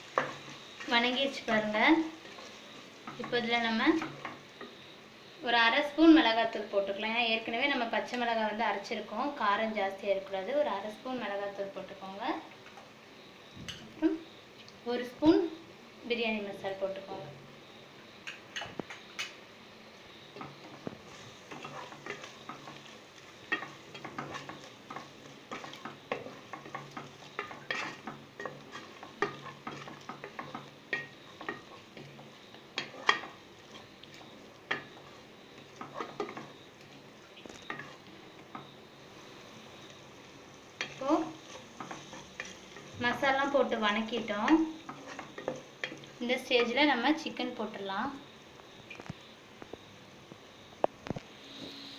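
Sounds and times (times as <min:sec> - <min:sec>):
spices sizzling in oil: 0:00.0 - 0:51.9
spatula scraping metal pot: 0:20.4 - 0:38.7, 0:40.8 - 0:46.8.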